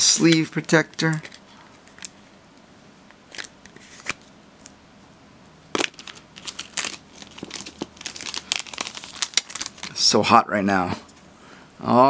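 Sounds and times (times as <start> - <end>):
plastic sleeve crinkling: 0.2 - 2.2, 5.7 - 10.2
sharp plastic crackles: 0.2 - 2.2, 5.7 - 10.1.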